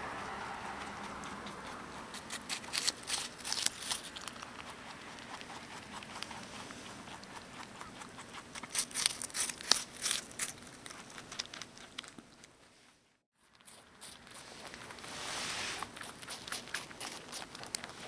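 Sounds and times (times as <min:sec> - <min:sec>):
rabbit chewing: 0:00.0 - 0:18.0
rabbit crunching apple: 0:00.0 - 0:18.0.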